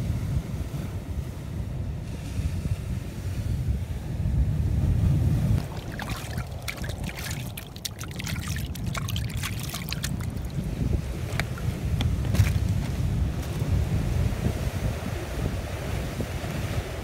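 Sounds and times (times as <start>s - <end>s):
wind rumble on microphone: 0.0s - 17.0s
water splashing and dripping: 5.6s - 12.9s.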